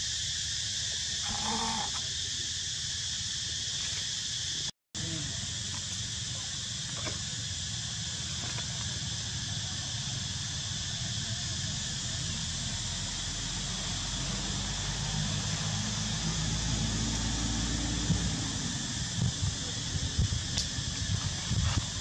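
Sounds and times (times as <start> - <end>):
high-pitched insect chorus: 0.0 - 22.0
low rumble: 15.6 - 22.0.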